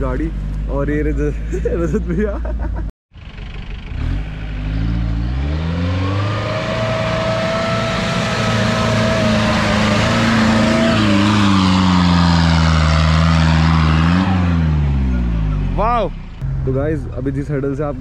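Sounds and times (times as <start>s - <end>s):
engine revving hard: 3.8s - 15.8s.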